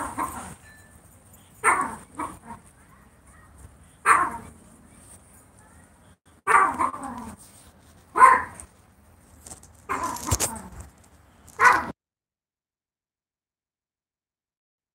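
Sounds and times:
dog barking: 0.0s - 0.6s, 1.6s - 4.6s, 6.4s - 7.4s, 8.1s - 8.7s, 9.9s - 10.5s, 11.6s - 12.0s.

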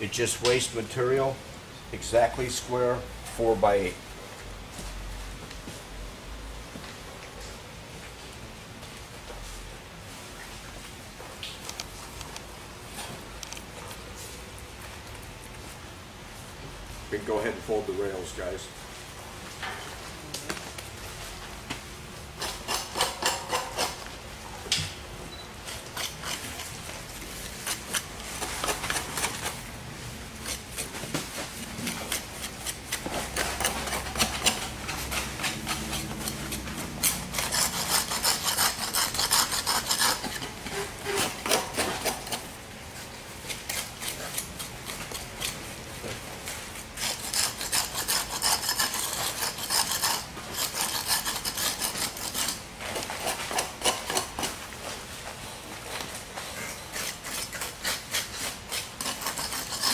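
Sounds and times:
gloved hands scraping concrete on steel: 31.9s - 42.4s, 47.0s - 54.6s, 56.7s - 59.9s.

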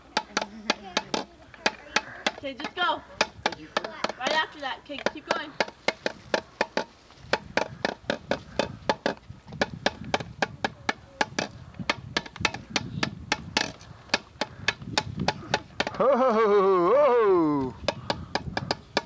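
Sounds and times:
hand drum beating: 0.0s - 19.0s.

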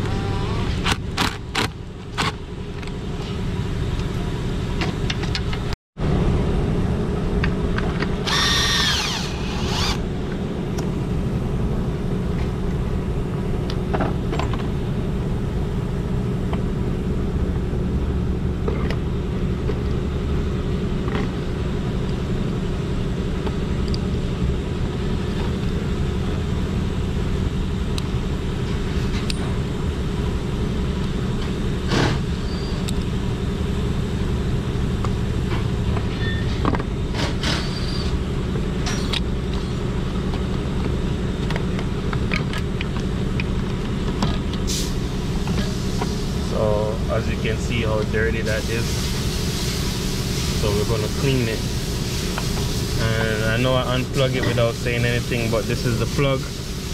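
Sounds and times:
air compressor humming: 8.2s - 13.3s, 44.6s - 56.9s
high squeak: 32.4s - 32.9s, 36.1s - 36.6s, 37.5s - 38.2s.

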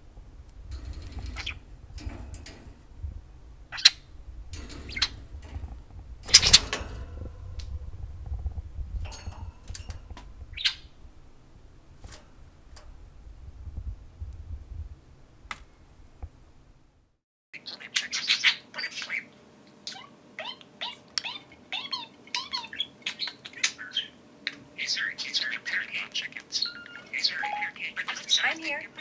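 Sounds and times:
budgerigars chirping: 17.6s - 29.0s.

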